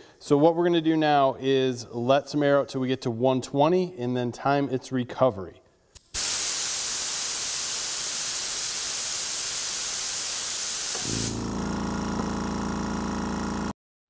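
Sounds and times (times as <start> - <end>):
compressed air hissing: 6.0 - 11.5
compressor motor humming: 10.9 - 13.7.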